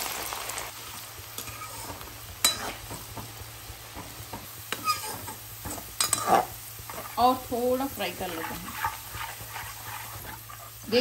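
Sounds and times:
onions sizzling in hot oil: 0:00.0 - 0:11.0
metal spoon clinking on pan: 0:02.4 - 0:02.7, 0:06.0 - 0:06.3.

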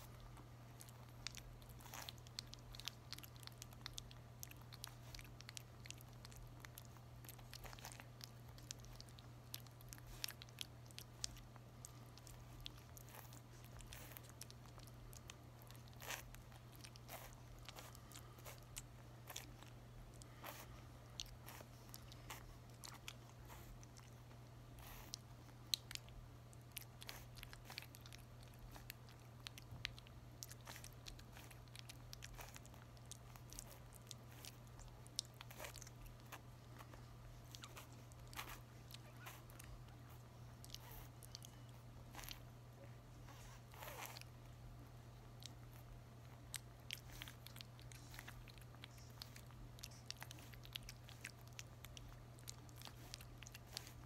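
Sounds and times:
puppy eating wet smacking: 0:00.0 - 0:54.0.

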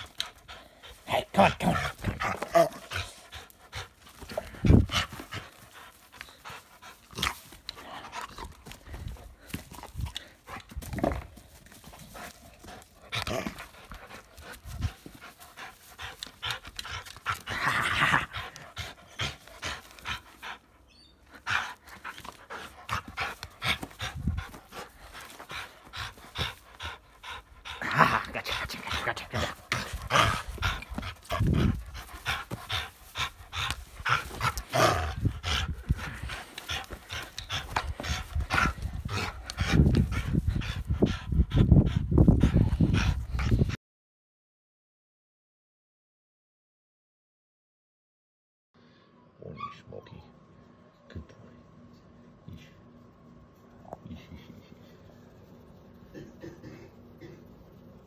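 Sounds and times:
dog panting: 0:00.0 - 0:43.8.

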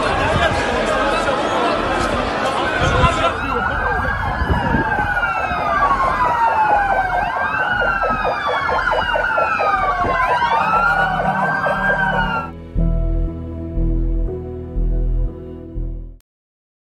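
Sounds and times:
sirens wailing: 0:02.7 - 0:12.6
music with low pulsing beat: 0:07.8 - 0:16.2.

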